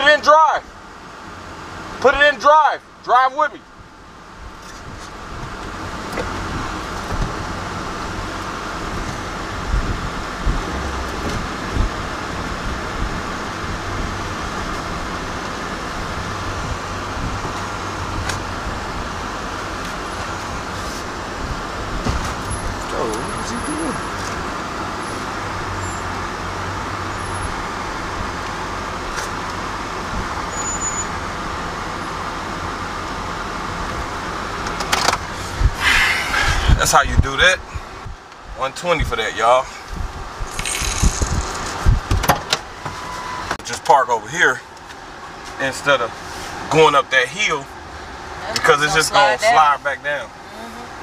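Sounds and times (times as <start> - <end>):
truck engine under load: 4.2 - 36.8, 39.9 - 43.9
low thumps: 8.9 - 13.2.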